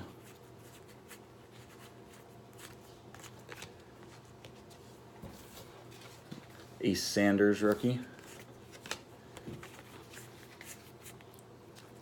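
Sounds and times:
trading cards flipped by hand: 0:07.6 - 0:12.0.

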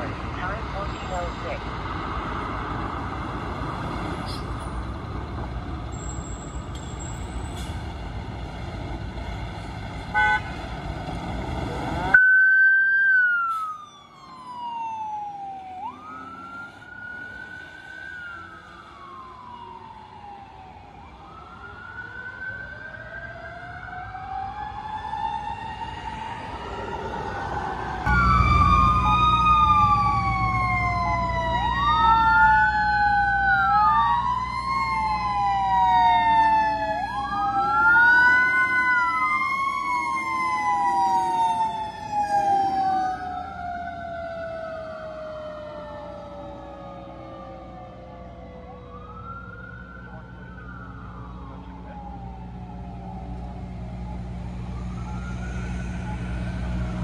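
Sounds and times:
diesel engine rumbling: 0:00.0 - 0:12.2, 0:25.7 - 0:57.0
fire engine siren wailing: 0:00.0 - 0:57.0.

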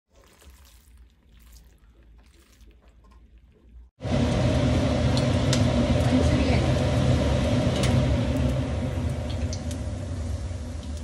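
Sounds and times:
gas stove hum: 0:04.0 - 0:11.0.

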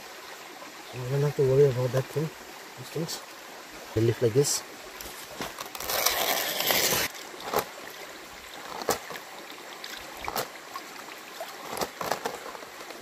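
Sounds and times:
stream running: 0:00.0 - 0:13.0
rustling scrape on leaf: 0:05.0 - 0:07.7.

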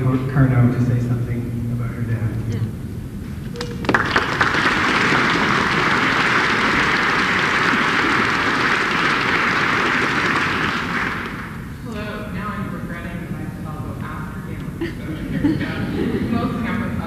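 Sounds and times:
audience applauding: 0:03.6 - 0:11.7.

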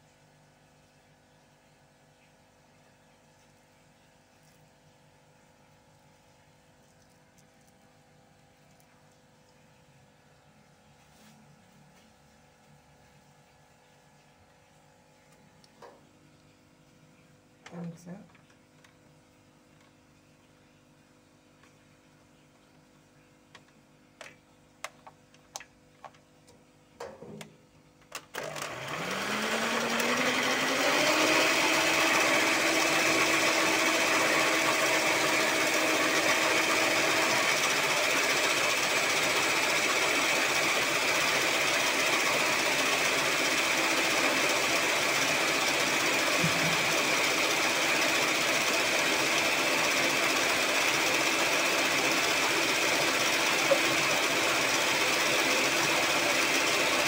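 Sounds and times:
electric mixer whining: 0:28.4 - 0:57.0.

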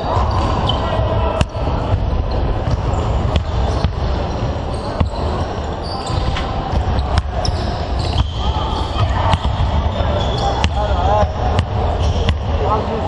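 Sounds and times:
murmur of voices: 0:00.0 - 0:13.0
basketballs bouncing on hardwood floor: 0:01.4 - 0:05.5, 0:09.0 - 0:12.6.

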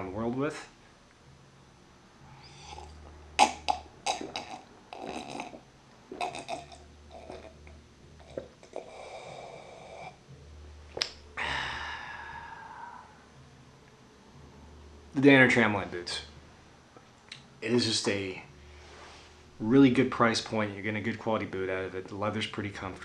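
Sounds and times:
man gulping a drink: 0:02.7 - 0:09.2
long breathy exhale: 0:11.4 - 0:13.3.

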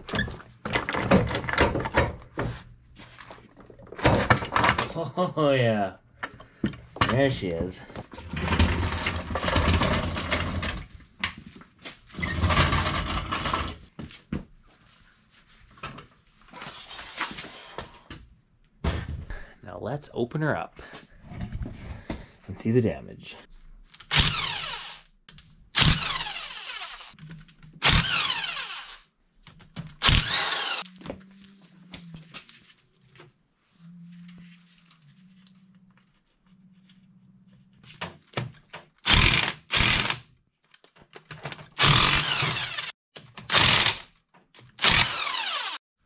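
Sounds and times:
rotary power tool whining: 0:24.1 - 0:25.1, 0:25.8 - 0:27.2, 0:27.8 - 0:29.1, 0:30.0 - 0:31.0, 0:39.0 - 0:40.2, 0:41.8 - 0:44.0, 0:44.7 - 0:45.8.

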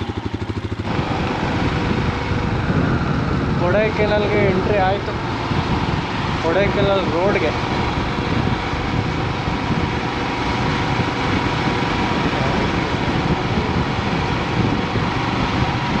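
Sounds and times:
motorcycle engine running: 0:00.0 - 0:16.0
wind and road noise: 0:00.0 - 0:16.0.

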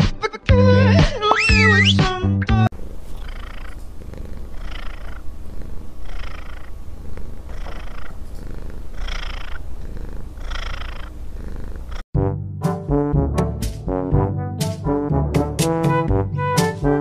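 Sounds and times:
cat purring: 0:02.7 - 0:12.1.

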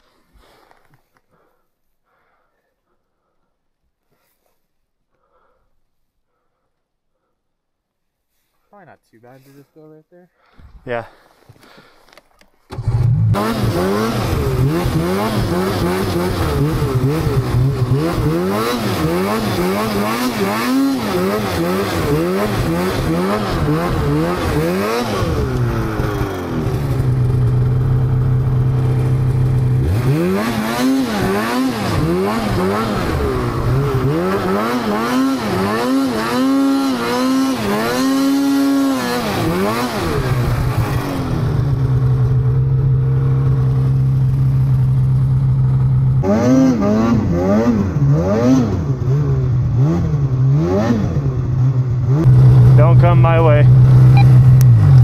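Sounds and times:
snowmobile engine revving: 0:12.7 - 0:55.0.

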